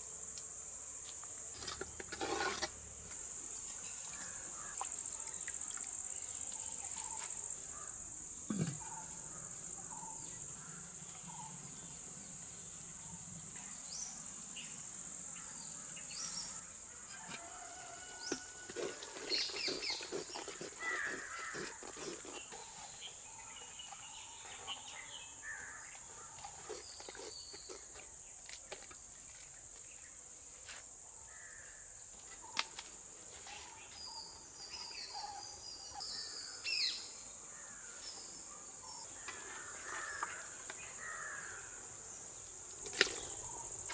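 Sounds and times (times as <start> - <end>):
wooden spoon scraping clay pot: 1.5 - 2.9, 18.2 - 23.1.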